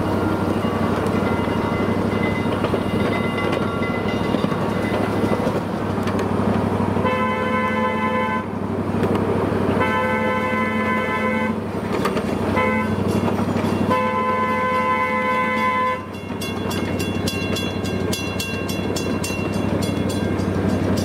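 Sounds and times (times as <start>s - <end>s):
train running: 0.0s - 21.0s
miniature train horn blasts: 7.0s - 8.6s, 9.8s - 11.6s, 12.5s - 13.2s, 13.8s - 16.2s.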